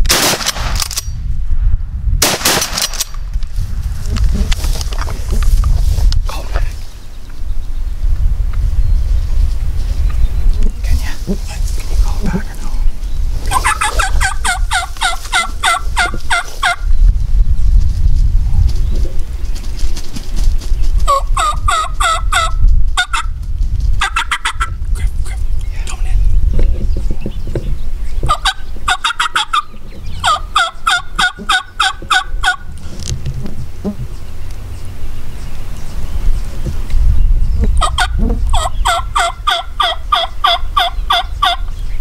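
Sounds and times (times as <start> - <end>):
wind rumble on microphone: 0.0 - 42.0
wild turkey yelping: 13.5 - 16.8, 21.1 - 23.3, 24.0 - 25.4, 28.3 - 32.7, 37.8 - 41.7.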